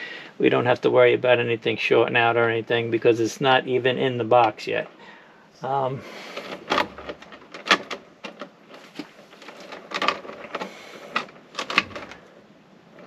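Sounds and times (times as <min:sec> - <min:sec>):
wires clicking and knocking: 0:06.3 - 0:12.3.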